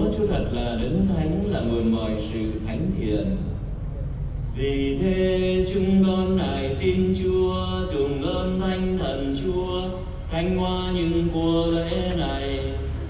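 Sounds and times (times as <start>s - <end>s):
slow chant-like church singing: 4.4s - 13.0s.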